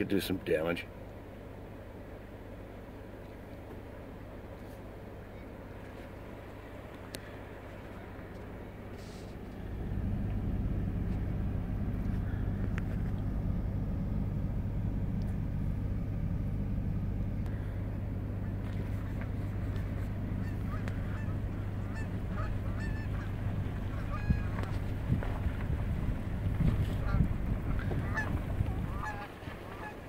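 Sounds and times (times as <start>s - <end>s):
car driving on gravel: 5.8s - 16.4s, 17.0s - 30.0s
geese honking: 17.4s - 30.0s.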